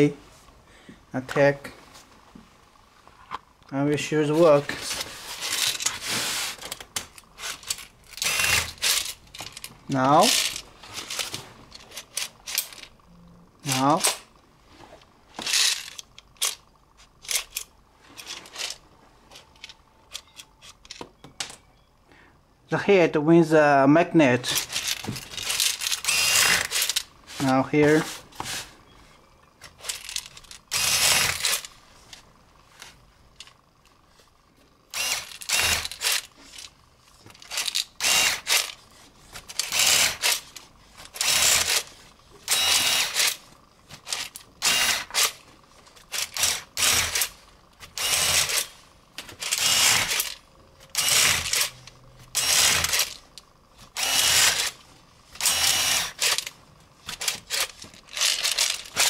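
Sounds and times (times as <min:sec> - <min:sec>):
electric screwdriver bursts: 0:07.4 - 0:09.2, 0:24.5 - 0:27.5, 0:29.9 - 0:31.7, 0:34.9 - 0:36.7, 0:37.5 - 0:38.8, 0:39.6 - 0:40.4, 0:41.2 - 0:41.9, 0:42.5 - 0:43.4, 0:44.1 - 0:45.4, 0:46.1 - 0:48.7, 0:49.4 - 0:51.7, 0:52.3 - 0:53.2, 0:53.9 - 0:54.8, 0:55.4 - 0:56.5.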